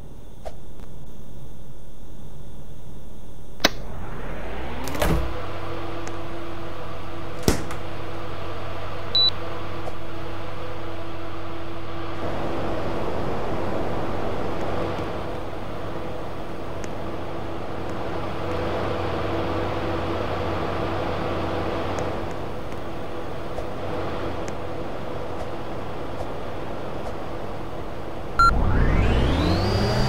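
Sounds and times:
air conditioner humming: 0.0s - 29.3s
click: 3.6s - 3.8s, 21.9s - 22.8s
motor spinning up whine: 3.6s - 9.6s, 28.0s - 30.0s.

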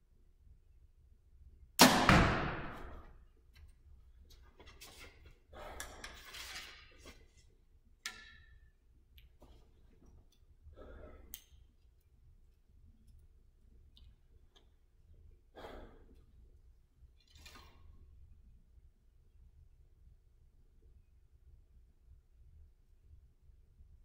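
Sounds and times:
person breathing and sighing: 10.7s - 11.4s.

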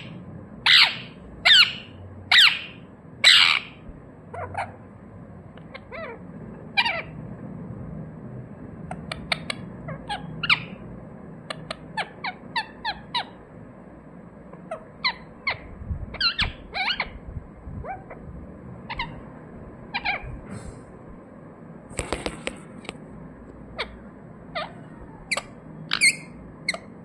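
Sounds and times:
parakeet chirping: 0.0s - 4.9s, 5.6s - 7.2s, 8.9s - 13.5s, 14.5s - 20.4s, 23.6s - 27.0s.

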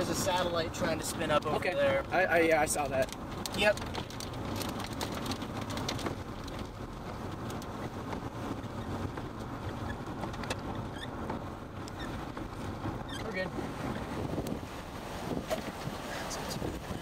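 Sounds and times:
wind and vehicle rushing: 0.0s - 17.0s.

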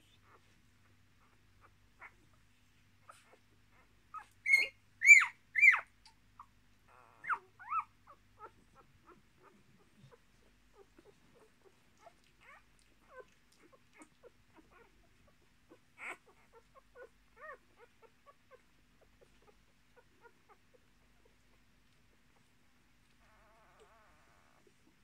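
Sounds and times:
puppies squealing: 3.1s - 5.9s, 6.9s - 11.5s, 16.0s - 18.6s.

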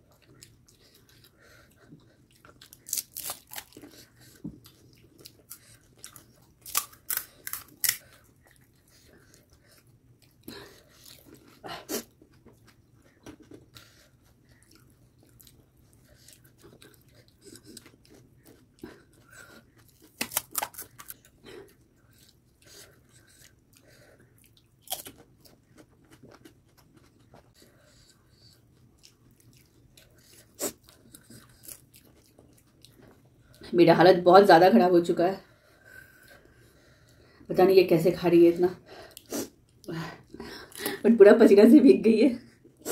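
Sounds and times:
crunching and chewing crisp snacks: 0.0s - 33.6s.

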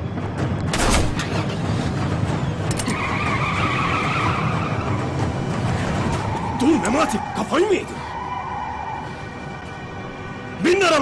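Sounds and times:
car tyres squealing: 2.7s - 9.6s.

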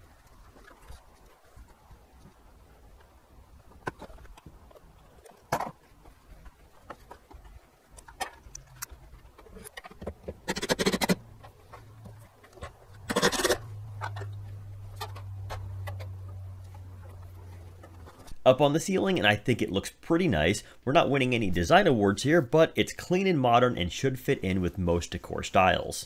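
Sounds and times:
low steady hum: 0.0s - 26.0s
metal housing clicks and knocks: 8.0s - 11.5s
metal scraping: 8.2s - 16.2s.

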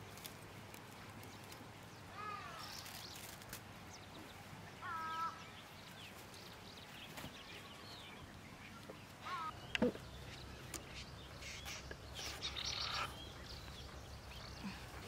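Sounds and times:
outdoor background noise: 0.0s - 15.0s
hen calling: 4.8s - 5.5s, 9.2s - 13.6s.

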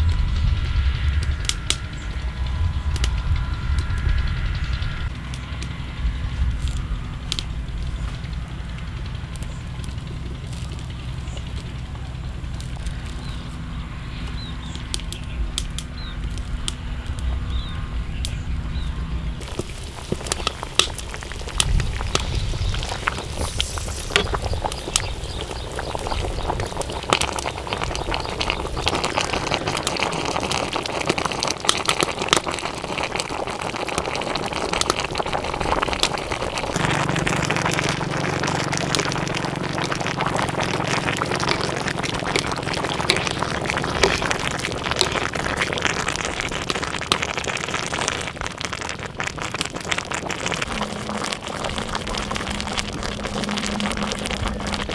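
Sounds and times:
low rumble: 0.0s - 32.6s, 34.9s - 54.9s
broth bubbling and popping: 0.0s - 54.9s.

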